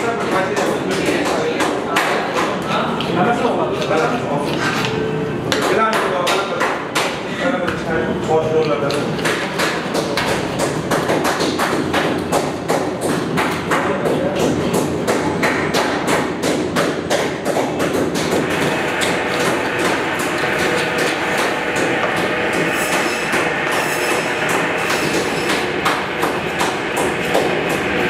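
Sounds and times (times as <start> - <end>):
knives chopping on cutting boards: 19.0 - 27.8.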